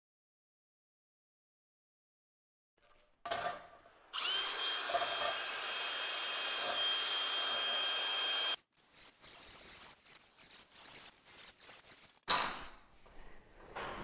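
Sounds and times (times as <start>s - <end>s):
angle grinder whining: 4.1s - 8.6s.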